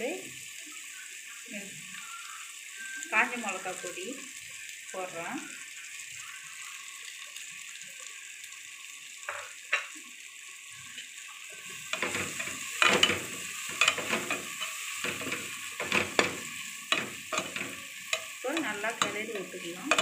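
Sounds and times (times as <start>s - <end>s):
masala frying sizzle: 0.0s - 20.0s
metal spatula scraping a pot: 11.9s - 20.0s.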